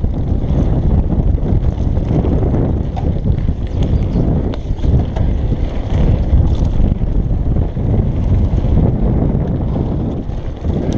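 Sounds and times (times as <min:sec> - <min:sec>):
tyres rumbling on gravel: 0:00.0 - 0:10.9
wind buffeting microphone: 0:00.0 - 0:10.9
bike knocking over bumps: 0:00.2 - 0:07.0.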